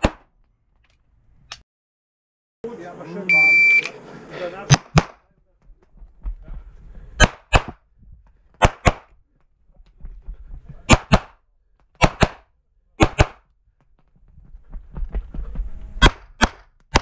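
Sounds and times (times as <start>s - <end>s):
pistol shots in pairs: 7.2s - 7.8s, 8.6s - 9.1s, 10.9s - 11.4s, 12.0s - 13.4s, 16.0s - 17.0s.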